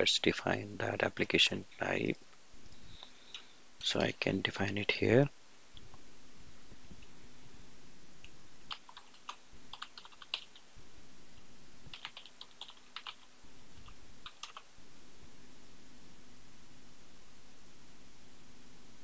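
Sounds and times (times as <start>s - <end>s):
computer keyboard typing: 8.7s - 10.6s, 11.9s - 14.6s.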